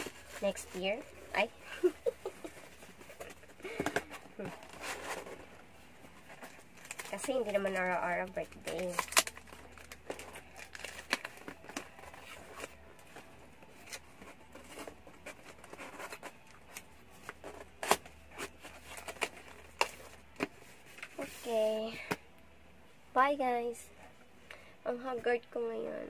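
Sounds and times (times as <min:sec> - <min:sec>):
packaging rustling: 0:06.2 - 0:21.3.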